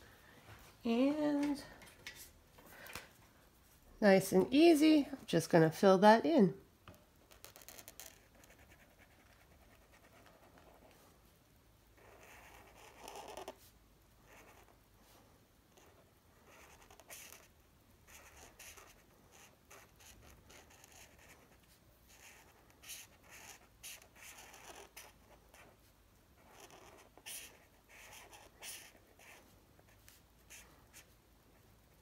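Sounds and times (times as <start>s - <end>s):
marker scratching on paper: 7.2s - 11.0s, 12.0s - 13.7s, 14.3s - 14.8s, 15.7s - 17.5s, 18.1s - 31.2s.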